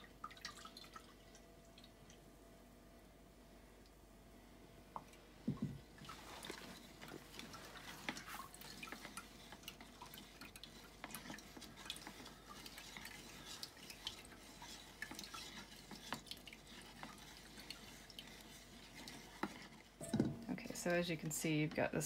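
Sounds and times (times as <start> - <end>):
plastic spoon scraping strainer: 6.1 - 21.7.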